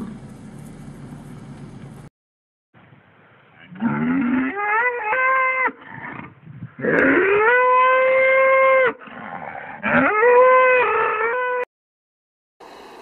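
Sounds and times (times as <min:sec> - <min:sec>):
cattle mooing: 0:03.6 - 0:06.2, 0:06.8 - 0:11.6.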